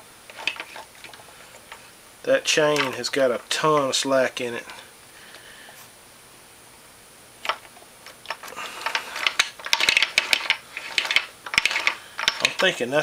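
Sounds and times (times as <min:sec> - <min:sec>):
drive chain clicking and rattling: 0:00.3 - 0:01.8, 0:02.5 - 0:04.8, 0:08.2 - 0:13.0.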